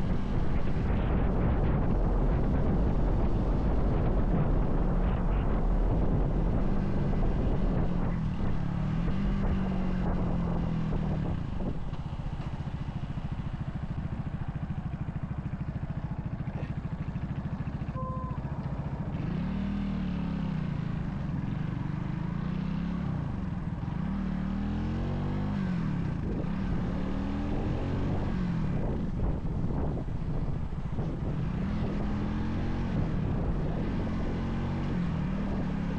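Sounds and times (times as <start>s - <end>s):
motorcycle engine revving and idling: 0.0s - 35.9s
brief beep: 17.9s - 18.6s.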